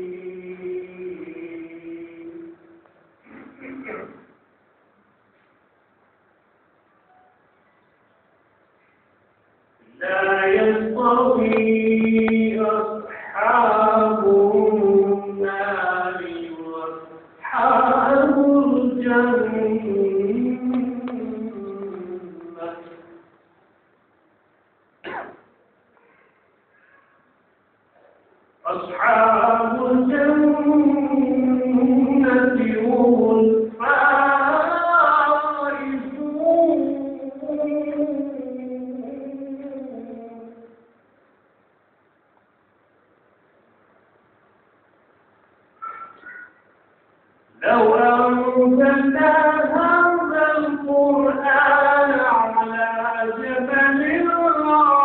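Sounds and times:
man chanting melodically: 9.9s - 23.2s, 28.6s - 40.6s, 47.6s - 55.0s.

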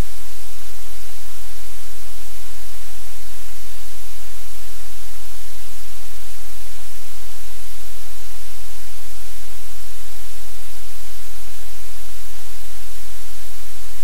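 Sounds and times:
loud static hiss: 0.0s - 14.0s.

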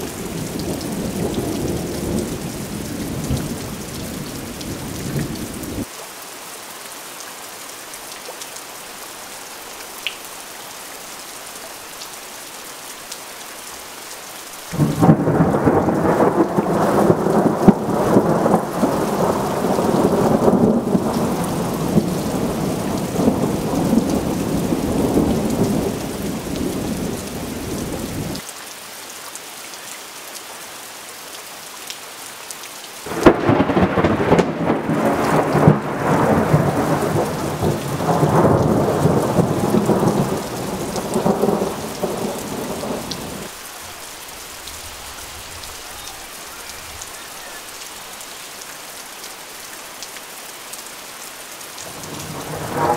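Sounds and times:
steady rain falling: 0.0s - 52.9s
thunder rumbling: 14.8s - 28.4s, 33.1s - 43.6s, 51.9s - 52.9s.

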